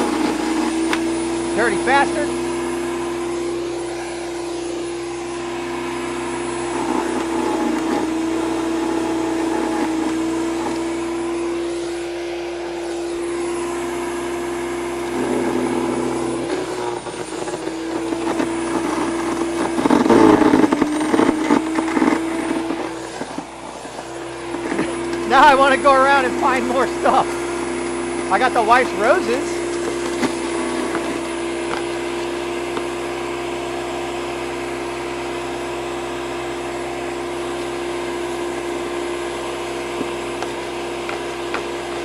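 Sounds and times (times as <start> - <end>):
chipper motor whine: 0.0 - 42.0.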